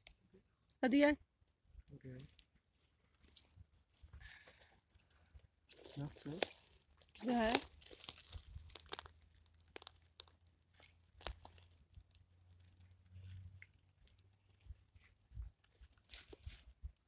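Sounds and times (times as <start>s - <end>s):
pine needles and twigs crackling: 5.7s - 15.0s, 15.6s - 17.0s
twigs snapping: 6.3s - 13.4s.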